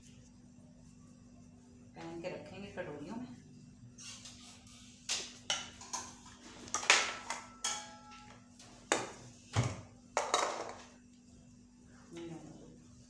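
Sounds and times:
spoon clinking on steel pan: 7.3 - 8.4.

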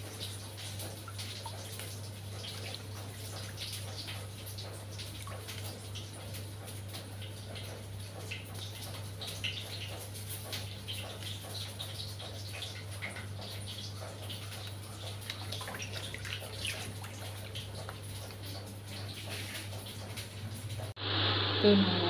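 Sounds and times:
water dripping into basin: 0.0 - 20.9
water splashing: 0.0 - 20.9
hands swishing leaves in water: 14.6 - 20.3.

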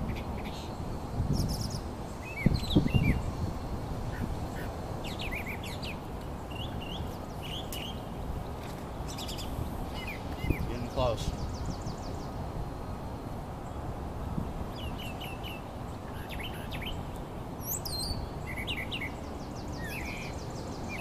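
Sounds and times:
birds chirping: 0.0 - 21.0.

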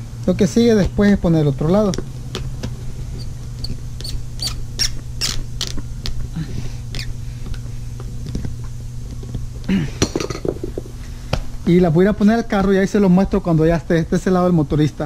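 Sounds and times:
steady low hum: 0.0 - 15.0
screw squeaking and clicking: 3.2 - 5.8, 6.9 - 7.1.

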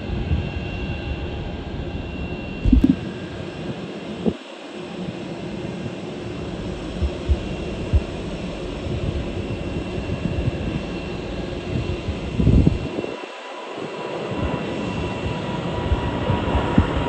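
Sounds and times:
jet engines rumbling: 0.0 - 17.0
short low thumps: 2.6 - 3.0.

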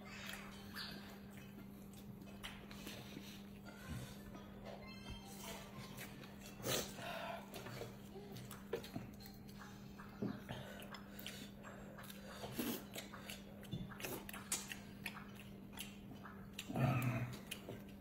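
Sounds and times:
chewing and slurping noodles: 5.2 - 18.0.

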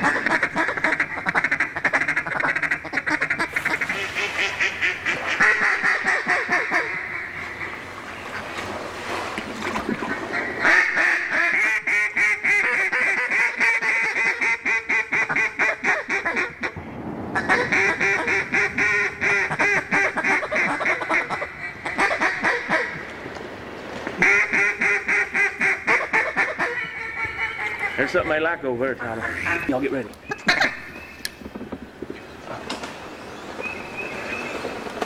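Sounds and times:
duck calls quacking: 0.0 - 7.8, 9.9 - 16.8, 17.4 - 23.0, 24.1 - 30.9.

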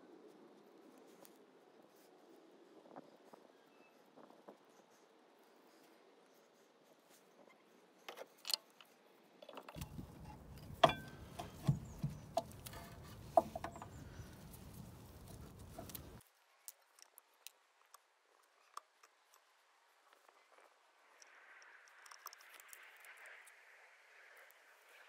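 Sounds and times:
metallic clicks and knocks: 8.1 - 14.0.

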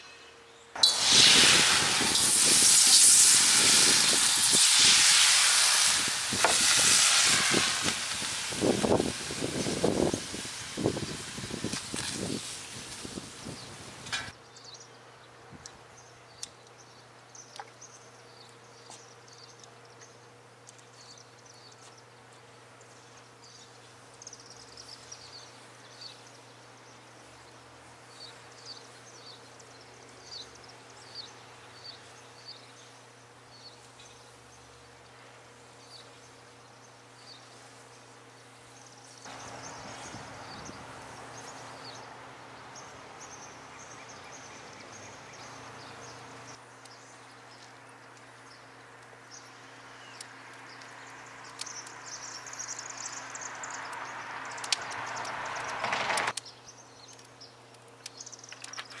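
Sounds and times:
even hiss: 0.0 - 14.4, 24.4 - 56.4
small birds chirping: 6.3 - 59.0.

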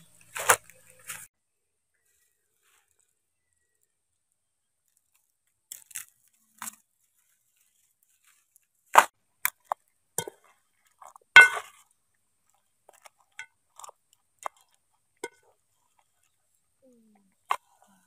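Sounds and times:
glass jar clinking on metal pot: 11.4 - 11.7.

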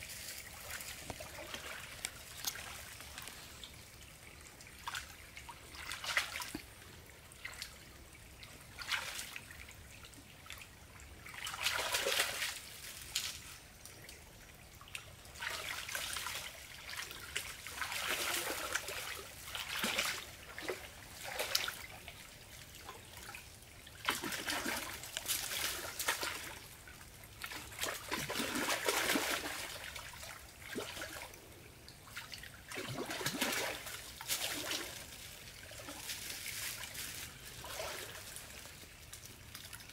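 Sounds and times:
stream water splashing: 0.0 - 39.9.

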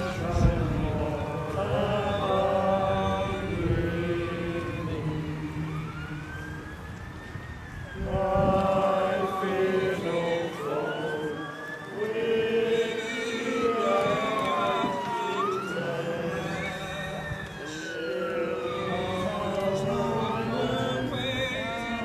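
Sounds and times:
crowd singing a hymn: 0.0 - 7.2, 7.9 - 22.0
emergency vehicle siren wailing: 0.0 - 22.0.

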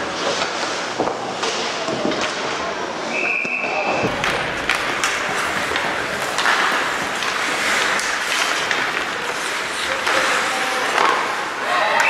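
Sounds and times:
hockey sticks and puck clicking: 0.0 - 12.0
skates hissing on ice: 3.8 - 12.0.

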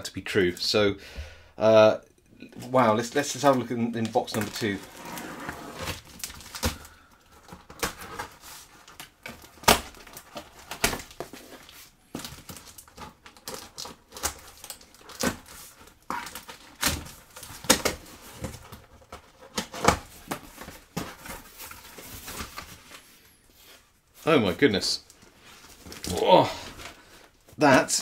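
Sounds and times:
cardboard flaps rustling: 3.1 - 23.1
packing tape ripping off cardboard: 4.2 - 18.8.

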